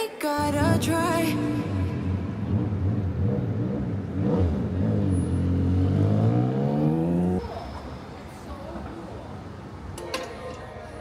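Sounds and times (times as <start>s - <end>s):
motorcycle engine accelerating: 1.4s - 7.6s.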